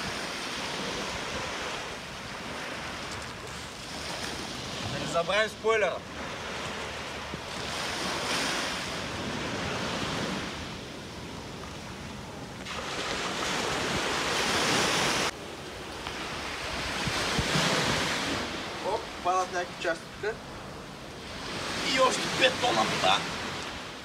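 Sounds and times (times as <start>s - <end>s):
wind on microphone: 0.0s - 5.3s, 6.0s - 19.3s
sea surf washing on shore: 0.0s - 24.0s.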